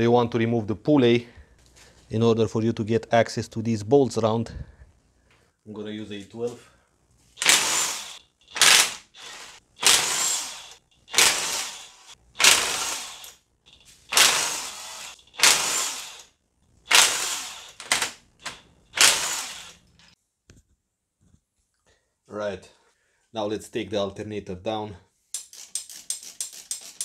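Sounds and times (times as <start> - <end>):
ratchet wrench clicking: 7.4 - 16.3, 25.4 - 27.0.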